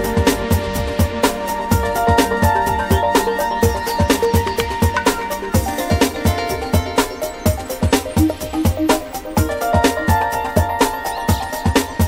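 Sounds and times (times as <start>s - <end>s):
electronic music with kick drum: 0.0s - 12.0s.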